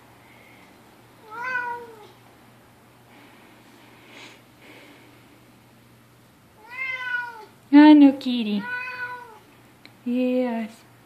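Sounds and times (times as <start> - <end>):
cat meowing: 1.2 - 2.2, 6.6 - 7.6, 8.6 - 9.5
faint puffs of breath: 3.0 - 5.6.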